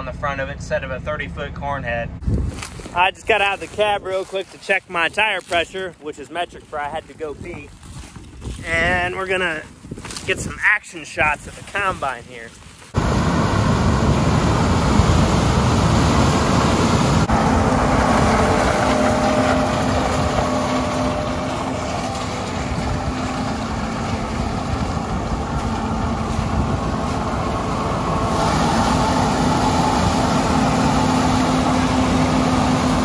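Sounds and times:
combine harvester running: 12.9 - 33.0.

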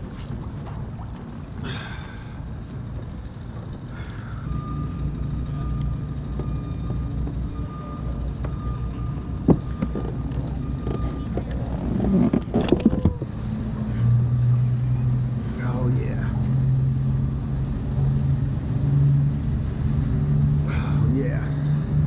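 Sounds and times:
race car engines rumbling: 0.0 - 22.0
knocks and clatter of gear: 9.4 - 13.3.

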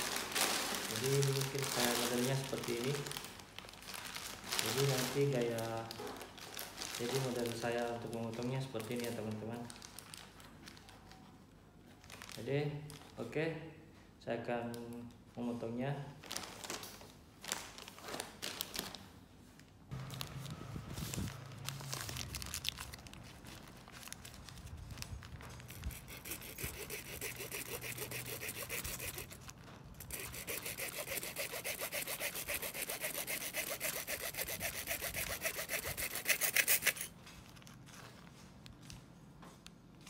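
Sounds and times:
hacksaw sawing through plastic: 25.7 - 37.1.

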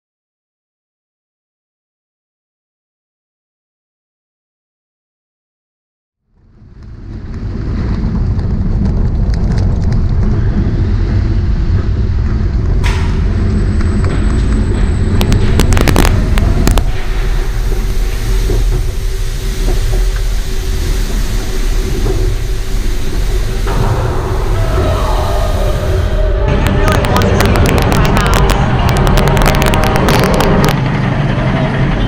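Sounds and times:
roller coaster chain lift rattle: 7.4 - 32.0
sharp clacks: 26.5 - 30.9.

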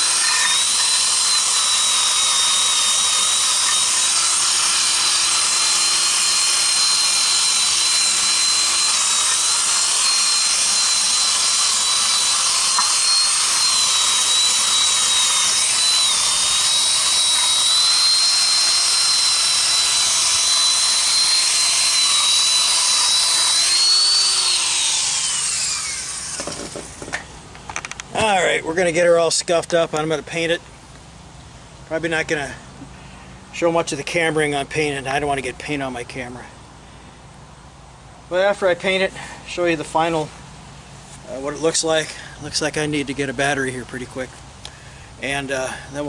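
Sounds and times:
wire brush scrubbing metal: 0.0 - 25.7
power tool motor whine: 0.0 - 27.2.

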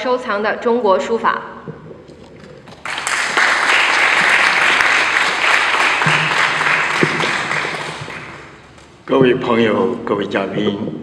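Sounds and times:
audience applauding: 2.8 - 8.8.

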